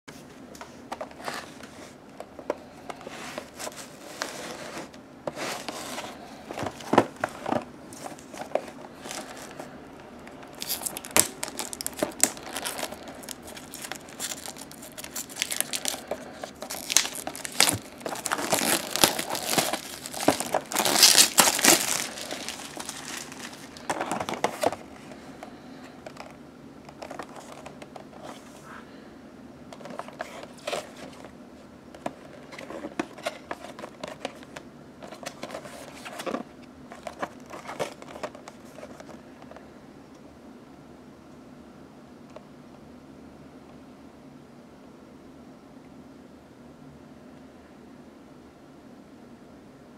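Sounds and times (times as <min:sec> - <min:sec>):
plastic crinkling: 0:02.8 - 0:25.3
cardboard scraping: 0:03.0 - 0:09.7, 0:10.4 - 0:24.8.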